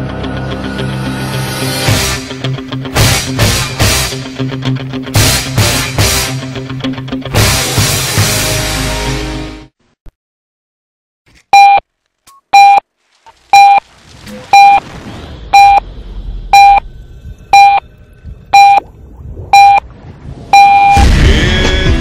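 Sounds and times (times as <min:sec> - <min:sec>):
short electronic beeps: 0:11.5 - 0:11.8, 0:12.4 - 0:12.8, 0:13.5 - 0:13.8, 0:14.5 - 0:14.8, 0:15.5 - 0:15.8, 0:16.5 - 0:16.8, 0:17.5 - 0:17.8, 0:18.5 - 0:18.8, 0:19.5 - 0:19.8, 0:20.5 - 0:21.0
low rumble: 0:14.8 - 0:22.0.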